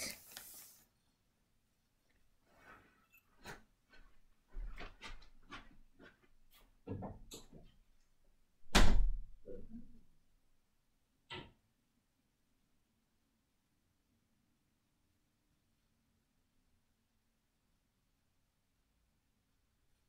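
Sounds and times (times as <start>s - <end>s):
footsteps across a room: 2.4s - 8.0s
door shutting with a thud: 8.7s - 9.4s.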